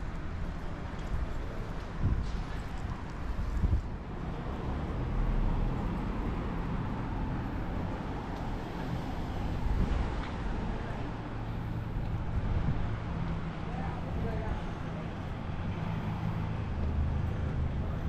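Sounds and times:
cars running on road: 0.0 - 18.0
low engine hum: 0.0 - 18.0.

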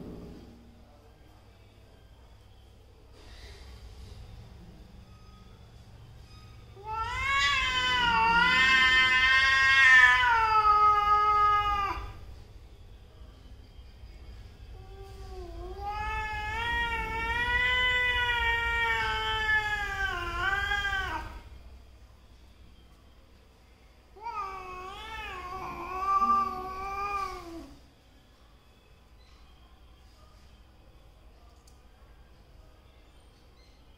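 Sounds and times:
cat yowling: 6.8 - 12.2, 15.3 - 21.4, 24.2 - 27.8.

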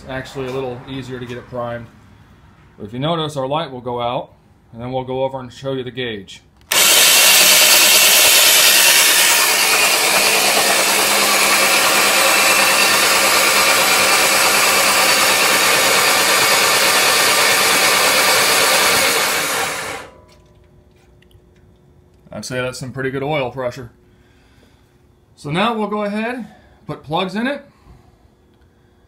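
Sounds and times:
starter cranking engine: 6.7 - 20.1.

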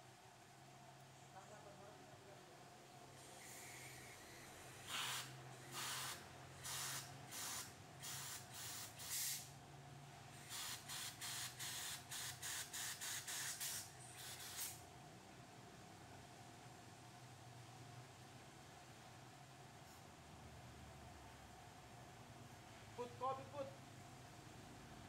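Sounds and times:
compressed air hissing puffs: 3.2 - 9.5, 10.4 - 14.8.

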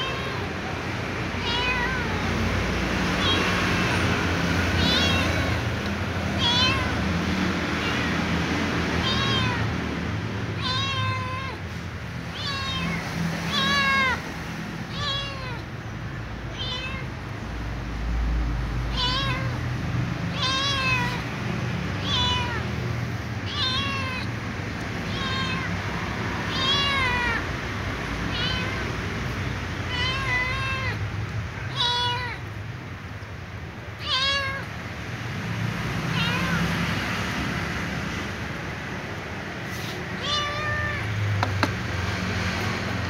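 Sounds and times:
kitten meowing: 0.0 - 0.6, 1.3 - 2.3, 3.1 - 4.0, 4.7 - 7.0, 7.8 - 8.3, 9.0 - 9.8, 10.5 - 14.2, 14.9 - 15.7, 16.5 - 17.1, 18.9 - 19.6, 20.3 - 21.3, 22.0 - 22.8, 23.4 - 24.4, 25.0 - 27.5, 28.2 - 28.8, 29.8 - 32.5, 34.0 - 34.7, 36.1 - 36.7, 39.8 - 41.2.

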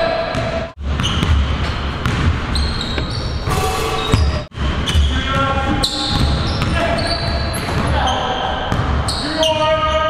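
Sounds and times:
sneakers squeaking on court: 0.3 - 10.0
basketball bouncing on hardwood floor: 1.0 - 3.4.

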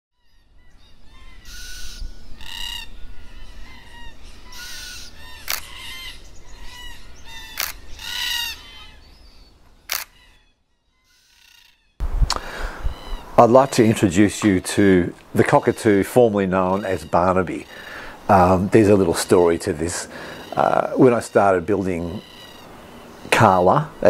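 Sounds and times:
bird chirps: 0.2 - 24.0
loud harsh bird calls: 0.2 - 24.0
sharp clicks: 5.4 - 5.7, 7.6 - 7.8, 9.9 - 10.2.

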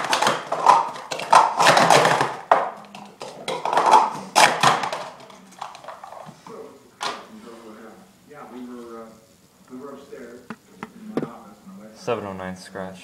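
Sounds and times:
plastic cups clattering: 0.0 - 6.4.

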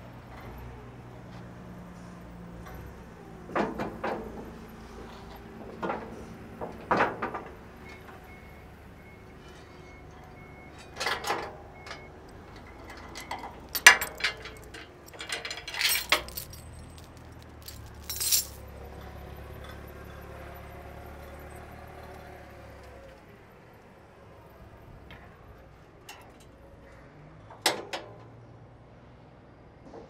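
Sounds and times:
steel chain rattling and clinking: 10.8 - 19.2.

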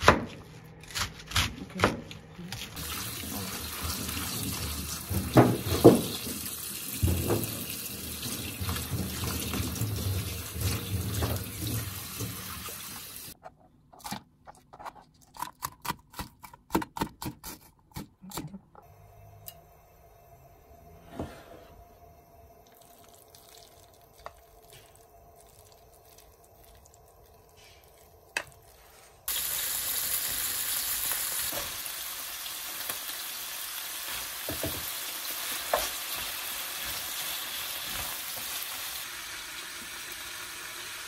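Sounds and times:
tap water running: 2.8 - 13.4, 29.3 - 41.0.

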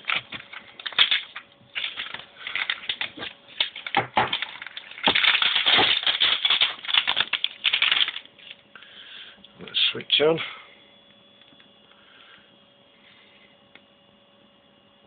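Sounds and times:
plastic film crinkling: 0.0 - 8.6.

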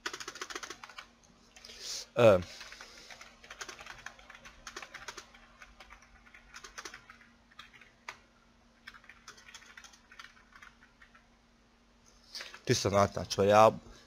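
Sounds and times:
typing on a keyboard: 0.0 - 1.1, 2.6 - 8.2, 8.8 - 11.2.

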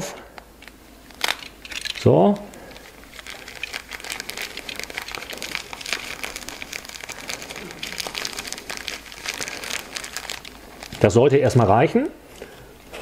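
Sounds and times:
plastic bags crinkling: 0.4 - 13.0
small dry ticks and crackles: 1.2 - 11.1.

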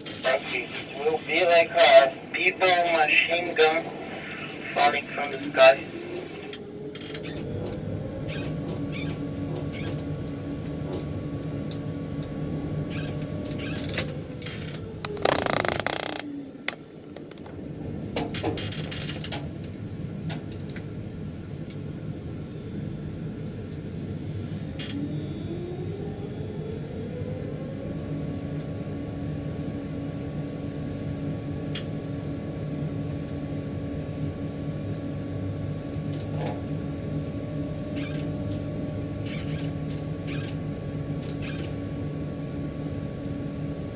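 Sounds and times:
electric motors humming: 0.0 - 18.2, 27.8 - 43.9.

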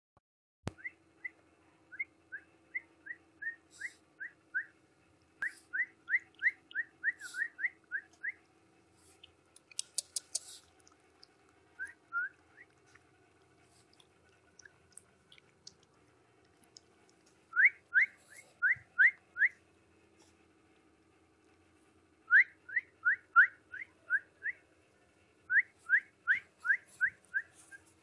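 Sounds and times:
scratchy and clicking noises: 9.1 - 11.6.

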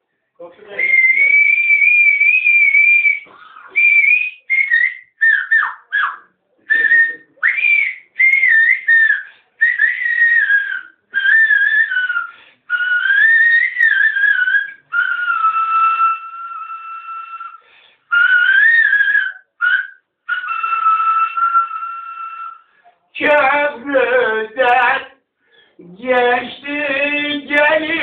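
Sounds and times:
man whistling a folk melody: 0.8 - 22.7.

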